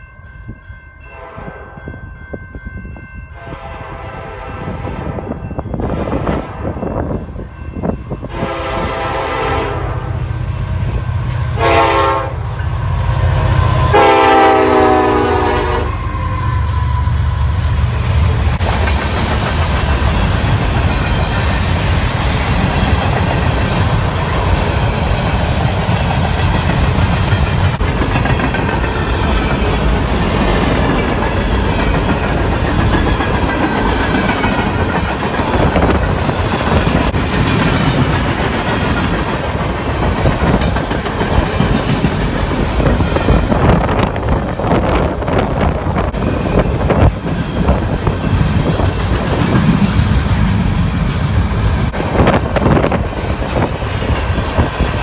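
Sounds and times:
locomotive air horn blasts: 1.2 - 1.8, 3.4 - 6.8, 8.3 - 10.2, 11.6 - 12.6, 13.7 - 17.0
train wheels rumbling on rails: 2.7 - 55.0
wheels clacking over rail joints: 18.6 - 43.7.

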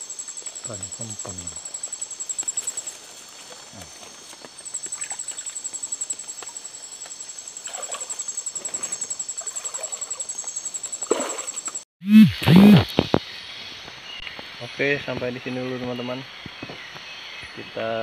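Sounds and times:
night insects chirping: 0.0 - 11.8, 12.9 - 18.0
loud low-pitched burst: 12.0 - 12.9.

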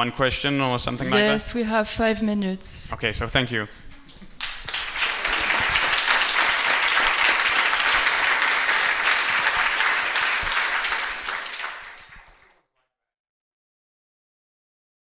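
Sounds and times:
audience applauding: 4.4 - 12.6.

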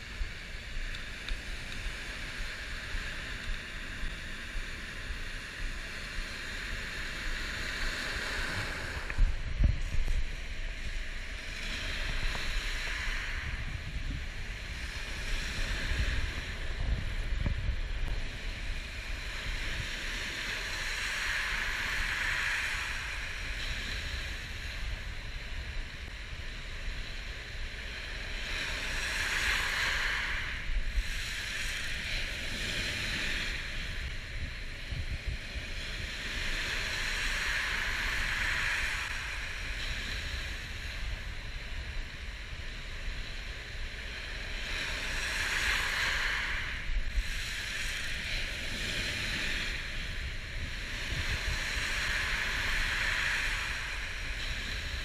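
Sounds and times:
surf washing over gravel beach: 0.0 - 55.0
wind buffeting microphone: 6.8 - 55.0.

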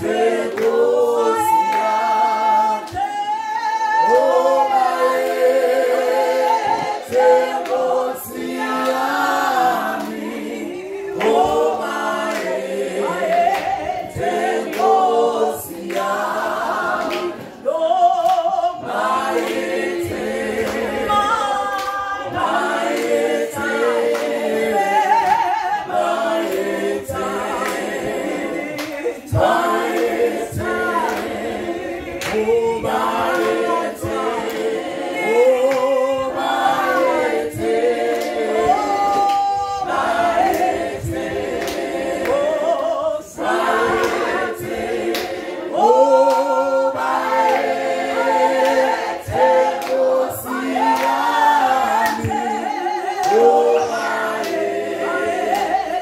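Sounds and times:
group singing a cappella: 0.0 - 56.0.

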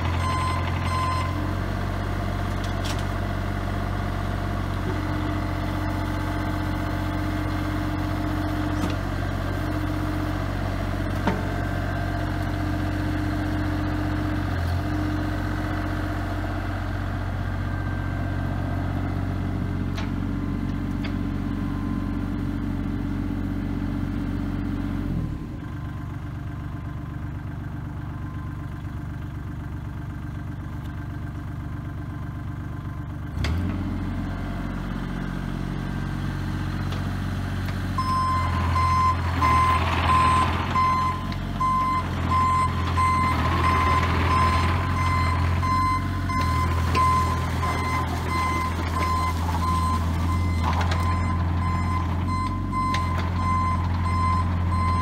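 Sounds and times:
excavator diesel engine running: 0.0 - 55.0
travel alarm beeping: 0.1 - 1.4, 38.0 - 55.0.

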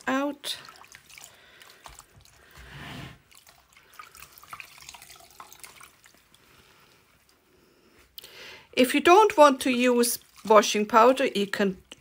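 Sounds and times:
water pouring into plastic bucket: 0.0 - 6.8, 9.3 - 11.5
water drips and splashes: 0.0 - 7.4, 8.8 - 12.0.

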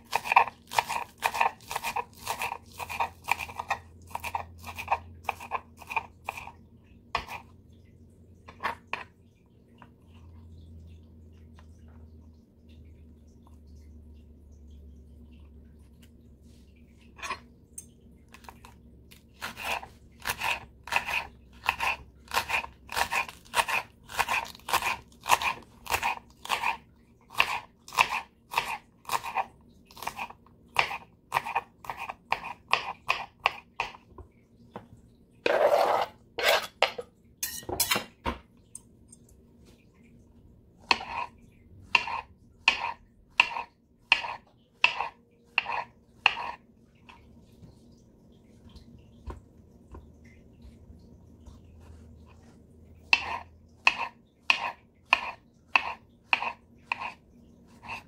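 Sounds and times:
serrated knife slicing peppers: 0.0 - 6.5, 19.4 - 34.0, 41.9 - 46.6, 53.1 - 57.2
knife scraping cutting board: 19.4 - 26.8, 35.4 - 38.2, 40.9 - 41.3, 41.9 - 46.6, 51.6 - 58.0.

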